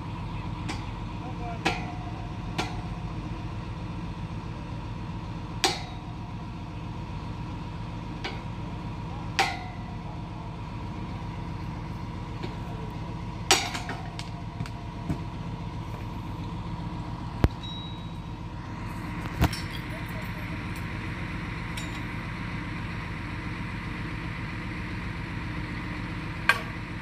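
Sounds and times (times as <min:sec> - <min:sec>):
engine running: 0:00.0 - 0:27.0
metallic clanks on steel pipes: 0:00.6 - 0:03.1, 0:05.6 - 0:06.2, 0:08.2 - 0:08.6, 0:09.3 - 0:10.1, 0:13.4 - 0:14.4, 0:21.7 - 0:22.2, 0:26.4 - 0:26.8.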